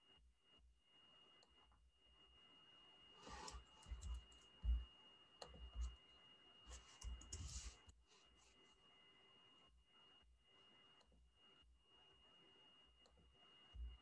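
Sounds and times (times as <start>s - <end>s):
soft thumps on a desk: 3.9s - 4.8s.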